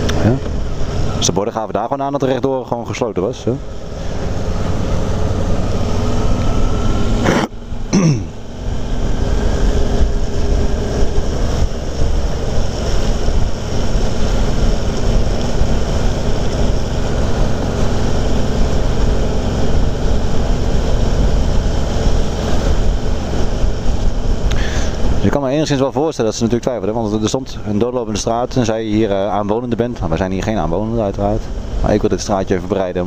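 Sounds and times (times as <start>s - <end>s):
motorcycle engine: 0.0s - 1.8s, 3.1s - 25.4s
wind noise on microphone: 8.7s - 25.3s.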